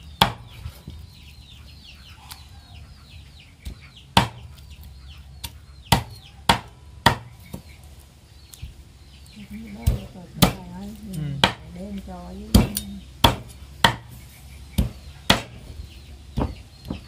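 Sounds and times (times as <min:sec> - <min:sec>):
chickens peeping and clucking: 0:00.0 - 0:17.0
cleaver chopping on wooden block: 0:00.2 - 0:00.4, 0:03.6 - 0:04.5, 0:05.4 - 0:07.3, 0:11.4 - 0:11.7, 0:12.5 - 0:14.1, 0:14.8 - 0:15.6.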